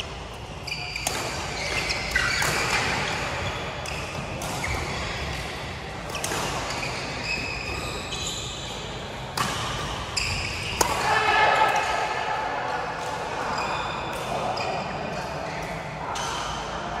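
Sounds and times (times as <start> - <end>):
shoes squeaking on court: 0.6 - 10.8
rackets hitting shuttlecock: 0.8 - 7.8, 9.2 - 13.3.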